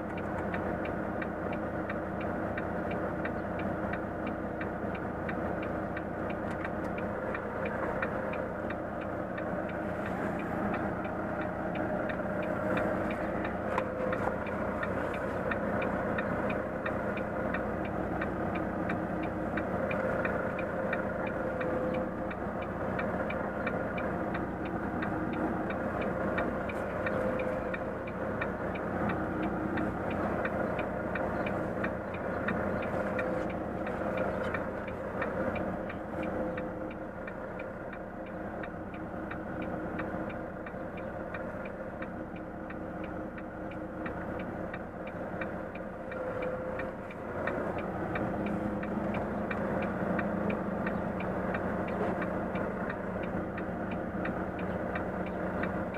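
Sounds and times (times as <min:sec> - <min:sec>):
truck diesel engine running: 0:00.0 - 0:55.9
turn signal ticking: 0:00.0 - 0:55.9.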